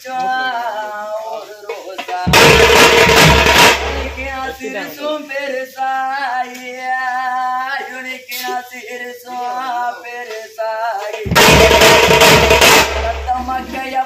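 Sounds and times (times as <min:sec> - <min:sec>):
person singing a lament: 0:00.0 - 0:02.5, 0:04.1 - 0:11.9, 0:13.1 - 0:14.0
loud drumming: 0:01.9 - 0:04.8, 0:11.1 - 0:14.0.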